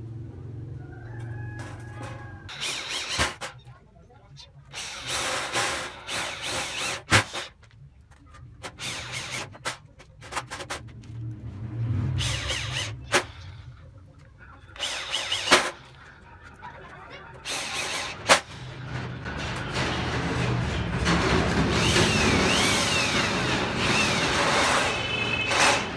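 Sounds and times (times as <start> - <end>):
electric drill whirring: 2.5 - 3.4, 4.7 - 7.5, 8.7 - 9.7, 12.2 - 13.4, 14.8 - 16.0, 17.4 - 18.5, 21.7 - 25.9.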